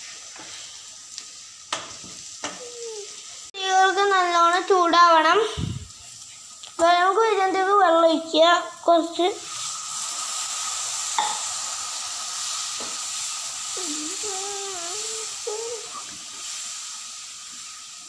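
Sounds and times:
onion sizzling in a frying pan: 0.0 - 18.0
person speaking: 13.8 - 15.9.

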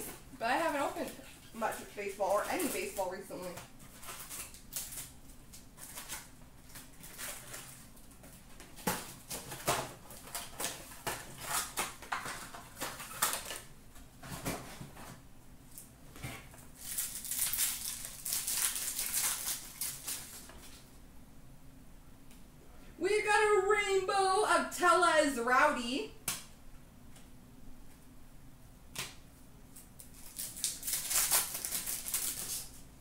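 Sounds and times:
foil wrapper crinkling and tearing: 0.8 - 13.7, 16.6 - 20.9, 29.7 - 32.9.

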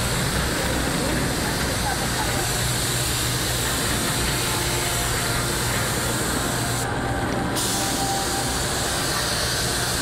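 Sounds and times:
paint spray gun hissing: 1.4 - 6.8, 7.6 - 10.0.

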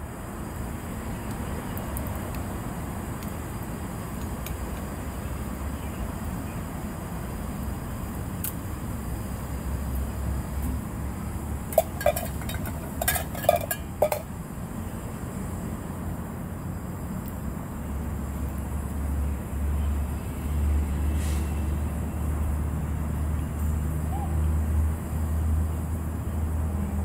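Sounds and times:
utensils clinking: 11.7 - 14.3.

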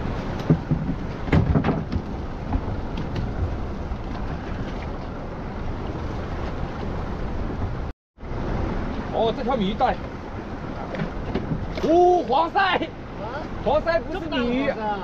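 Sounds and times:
wind rumbling on microphone: 0.0 - 12.3
sea washing: 0.0 - 15.0
knocks on boat: 0.3 - 4.2, 10.8 - 11.9.

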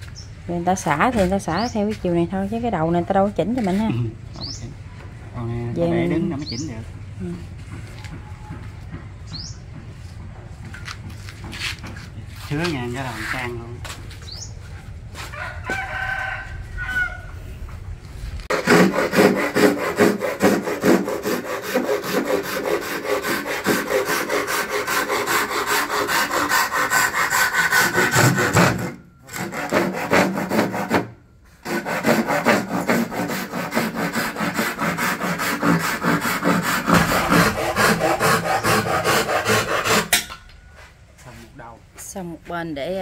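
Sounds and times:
saw cutting wood: 18.5 - 40.3.

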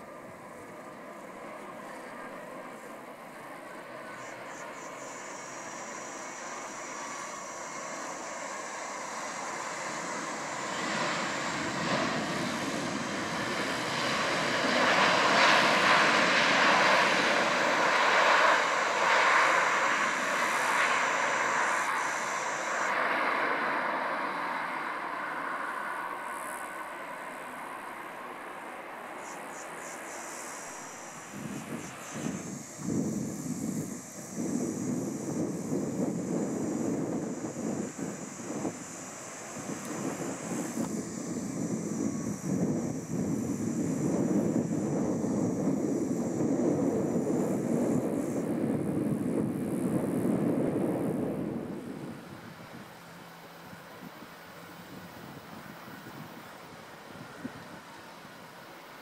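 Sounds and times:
jet engines roaring: 0.0 - 59.0.

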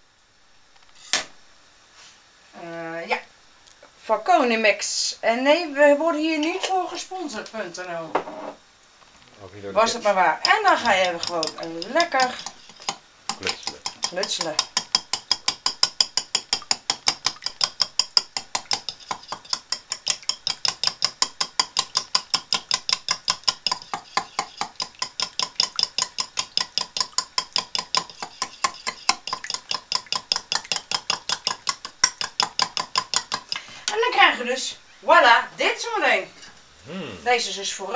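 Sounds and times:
fork beating eggs in bowl: 6.3 - 6.8, 9.8 - 34.1.

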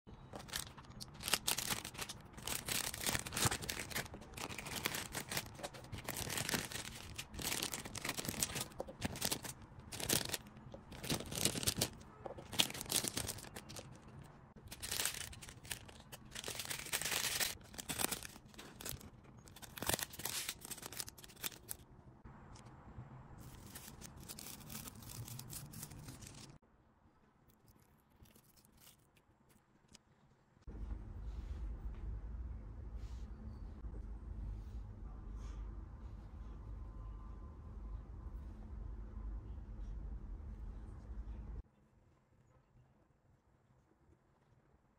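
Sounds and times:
plastic packaging crinkling: 0.3 - 21.8, 23.4 - 26.6.

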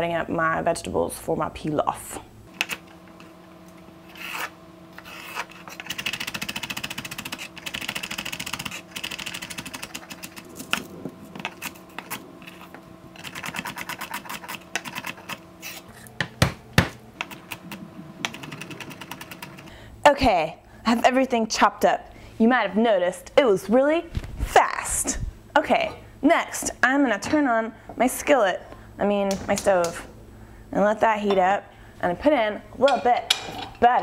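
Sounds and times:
knife chopping on wooden board: 16.1 - 17.0.

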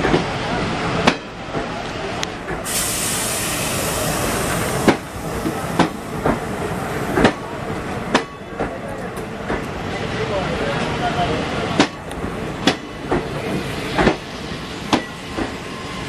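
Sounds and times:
train rumble: 0.0 - 16.0
hiss: 2.6 - 5.6
train wheels clacking over rail joints: 4.5 - 6.4, 11.8 - 14.3.

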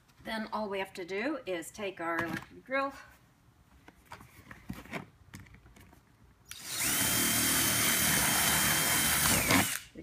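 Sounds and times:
electric drill whining: 6.5 - 9.9.

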